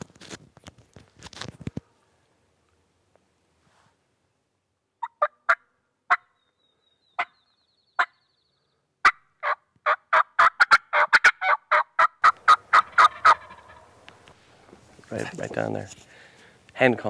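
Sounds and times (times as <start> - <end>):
turkey call notes: 5.0 - 14.2.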